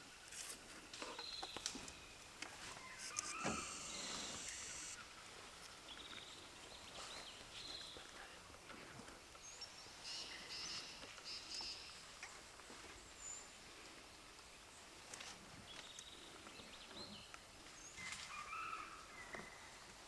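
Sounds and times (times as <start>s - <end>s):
bird calls: 1.0s - 5.2s, 9.4s - 12.4s.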